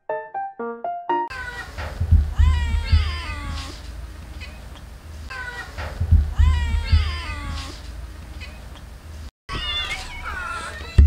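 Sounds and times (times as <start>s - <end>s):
low thumps: 1.8s - 3.2s, 5.8s - 7.2s
cat meowing: 9.5s - 11.0s.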